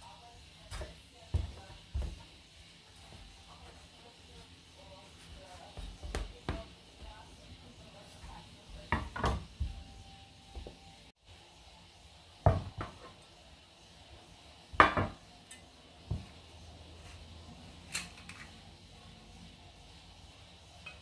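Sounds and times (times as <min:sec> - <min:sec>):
kitchenware knocking on wood: 0:08.9 - 0:09.8, 0:14.8 - 0:15.2.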